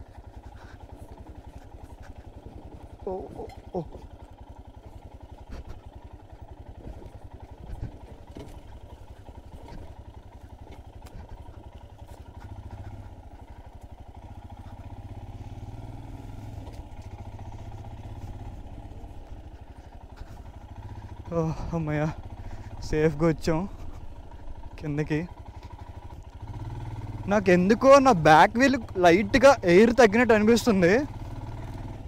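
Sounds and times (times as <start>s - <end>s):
motorcycle engine running: 0.0s - 32.0s
bike knocks and rattles: 5.0s - 14.4s.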